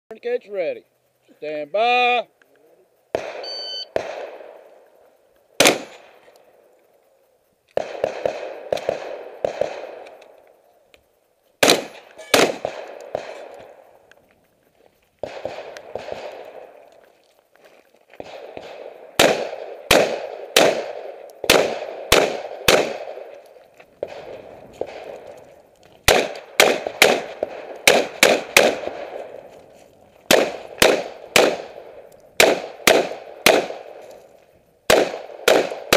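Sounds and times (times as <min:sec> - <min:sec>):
gunshots with echo: 0:03.1 - 0:04.6, 0:05.6 - 0:06.2, 0:07.8 - 0:10.1, 0:11.6 - 0:13.7, 0:15.2 - 0:16.8, 0:18.2 - 0:23.4, 0:24.0 - 0:25.4, 0:26.0 - 0:29.4, 0:30.3 - 0:34.0, 0:34.9 - 0:35.9
shot timer beep: 0:03.4 - 0:03.9.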